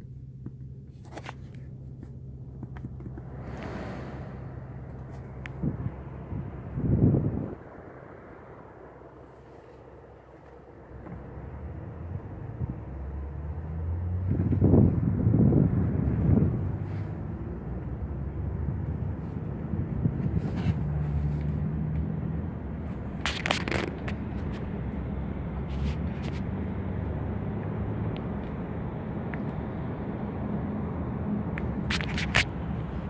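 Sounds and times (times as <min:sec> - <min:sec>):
vehicle cabin rumble: 0:00.0 - 0:33.0
sharp clicks and scrapes: 0:23.2 - 0:24.6, 0:31.8 - 0:32.6.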